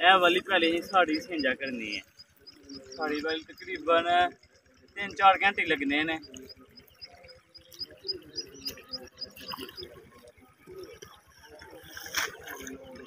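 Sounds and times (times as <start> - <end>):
small birds chirping: 0.0 - 13.0
water splash: 11.0 - 13.0.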